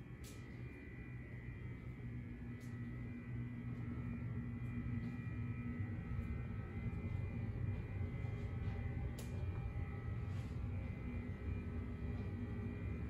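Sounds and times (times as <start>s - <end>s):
low room hum: 0.0s - 13.0s
footsteps on carpet: 6.0s - 11.2s.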